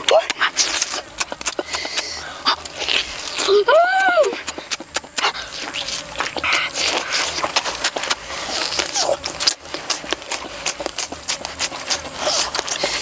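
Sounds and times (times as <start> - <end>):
crunching clicks of bites: 0.0 - 13.0
wet chewing and lip-smacking: 0.0 - 13.0.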